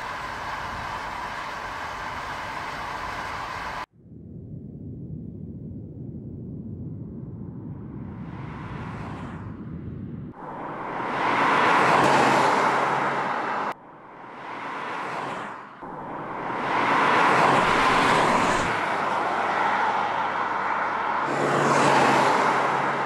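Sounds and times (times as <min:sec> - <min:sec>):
car driving past: 0:10.4 - 0:23.0.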